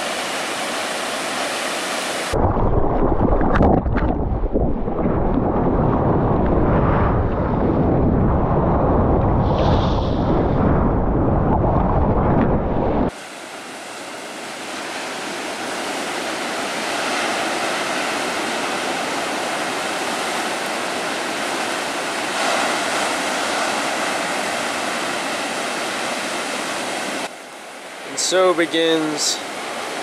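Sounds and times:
water rushing: 0.0 - 7.4, 9.4 - 30.0
surf breaking: 2.2 - 13.2, 14.8 - 27.3
wind buffeting microphone: 2.3 - 13.2.

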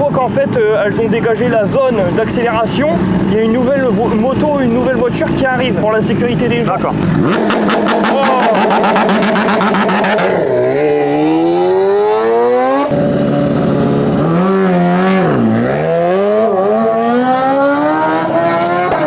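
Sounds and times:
racing car engine accelerating hard: 6.8 - 19.0.

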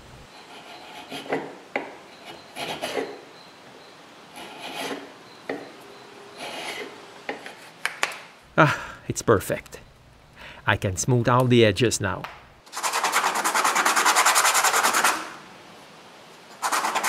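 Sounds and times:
hand plane scraping wood: 0.5 - 1.5, 4.4 - 5.6, 6.4 - 7.7.

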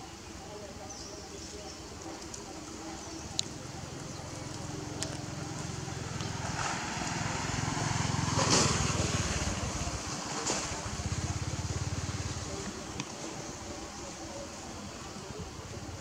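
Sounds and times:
vehicle engine running: 3.1 - 14.2.

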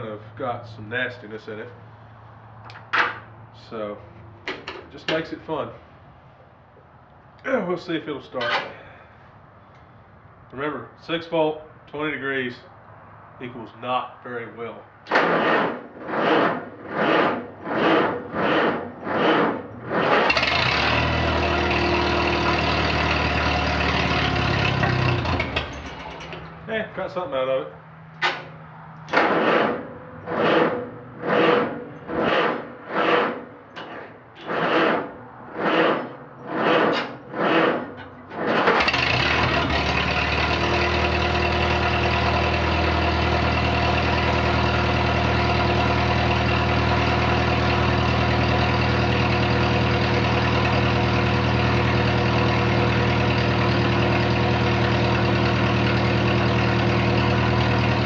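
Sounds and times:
starter motor cranking: 15.1 - 26.4, 29.1 - 58.0
tractor engine idling: 15.4 - 58.0.

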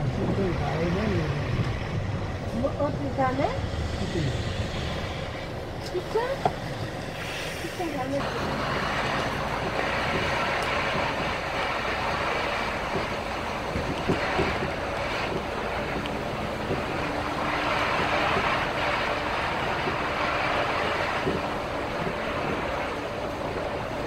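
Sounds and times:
bus engine and road noise: 0.0 - 24.0
hiss: 3.6 - 5.6, 7.0 - 15.4.

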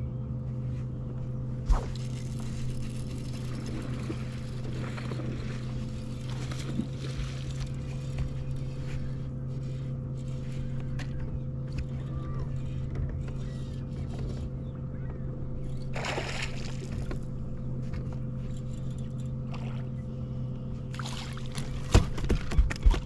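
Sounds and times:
electric trolling motor hum: 0.0 - 23.0
rustling and splashing: 1.6 - 11.0, 15.9 - 18.1.

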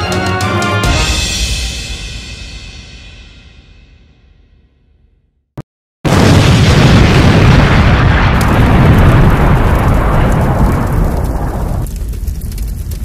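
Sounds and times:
explosion blast: 6.0 - 12.5.

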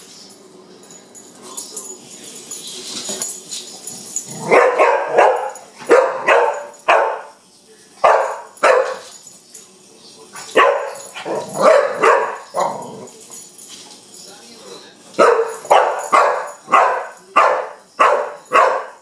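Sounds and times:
dog barking: 4.4 - 7.4, 8.0 - 9.1, 10.4 - 13.1, 15.2 - 19.0.

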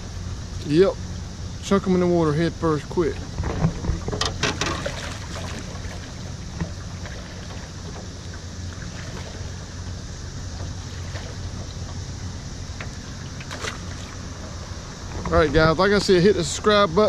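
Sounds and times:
outboard motor idling: 0.0 - 17.0
splashes and knocks: 3.3 - 9.5, 12.8 - 14.2.

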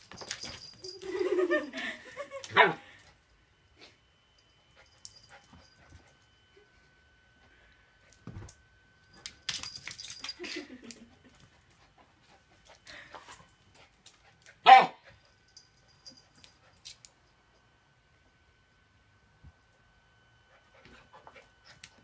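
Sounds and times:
puppy barking: 2.5 - 2.8, 14.6 - 15.0.

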